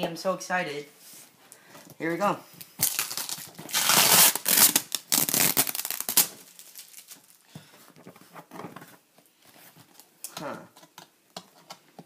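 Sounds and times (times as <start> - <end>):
packing tape tearing: 2.7 - 7.4.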